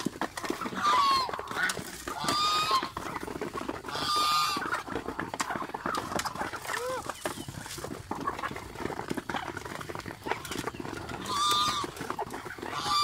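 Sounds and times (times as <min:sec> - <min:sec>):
birds pecking at rice: 0:00.0 - 0:13.0
goose honking: 0:00.6 - 0:03.2, 0:03.8 - 0:07.2, 0:10.2 - 0:13.0.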